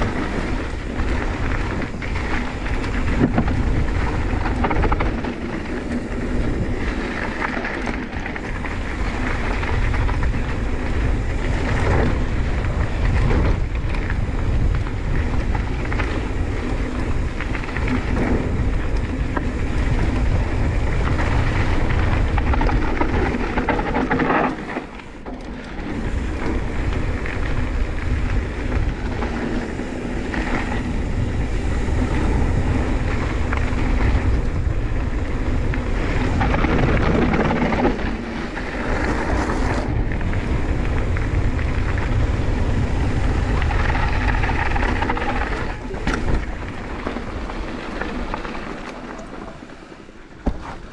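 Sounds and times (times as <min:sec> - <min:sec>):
tyres rolling on gravel: 0:00.0 - 0:50.9
wind buffeting microphone: 0:00.0 - 0:50.9
bike knocking over bumps: 0:50.4 - 0:50.9.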